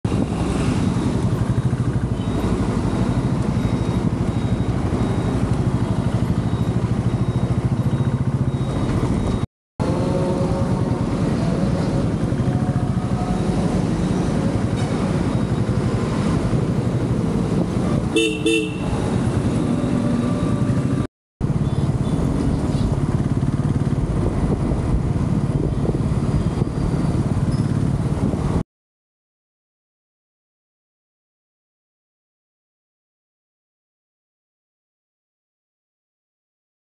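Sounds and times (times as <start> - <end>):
motorcycle engine running: 0.1 - 28.6
road noise: 0.1 - 28.6
vehicle horn honks: 18.1 - 19.0.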